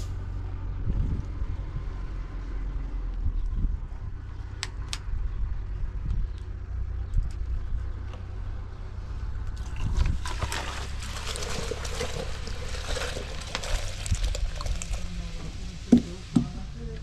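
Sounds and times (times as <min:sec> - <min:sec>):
liquid pouring into plastic jug: 0:09.6 - 0:15.2.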